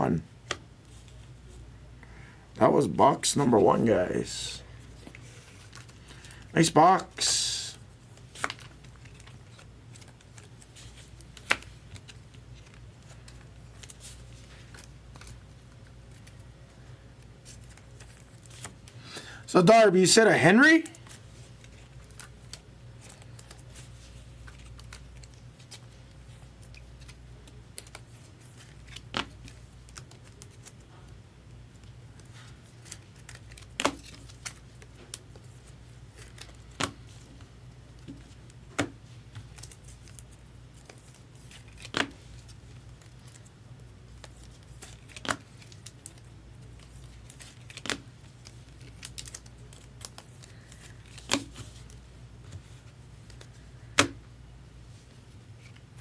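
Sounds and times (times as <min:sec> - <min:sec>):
packaging tearing and crinkling: 0:44.2 - 0:51.9.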